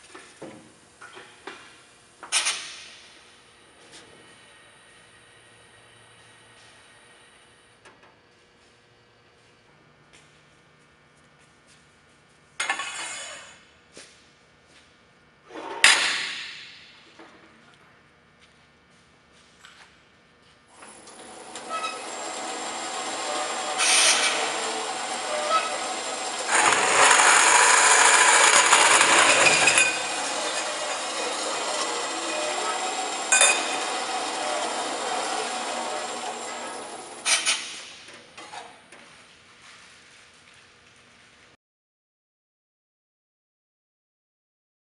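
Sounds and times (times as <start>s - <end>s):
band saw starting up: 20.8s - 38.0s
saw blade grinding through metal: 21.3s - 37.8s.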